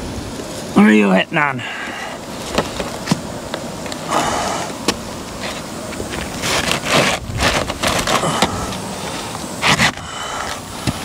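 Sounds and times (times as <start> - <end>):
knife scraping roof shingle: 4.1 - 11.0.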